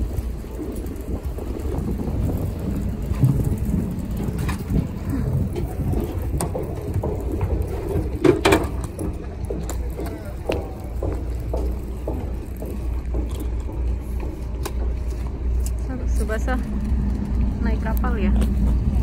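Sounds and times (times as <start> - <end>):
low rumble: 0.0 - 19.0
suitcase wheels rattling: 0.0 - 19.0.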